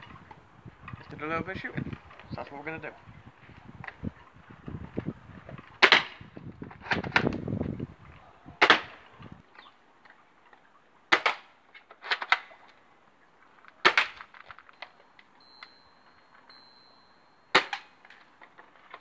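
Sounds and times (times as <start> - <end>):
air rifle shots snapping: 5.8 - 6.2.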